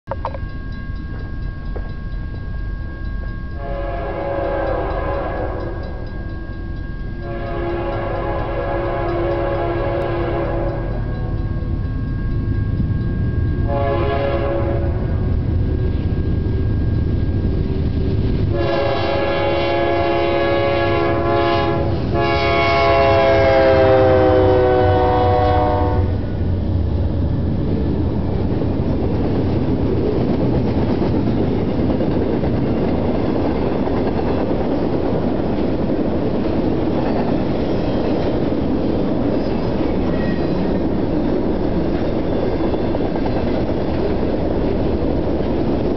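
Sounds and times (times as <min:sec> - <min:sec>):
diesel locomotive engine rumble: 0:00.1 - 0:45.9
railcars clattering on rails: 0:00.1 - 0:45.9
train air horn: 0:03.6 - 0:05.8, 0:07.2 - 0:11.3, 0:13.7 - 0:15.5, 0:18.5 - 0:26.3.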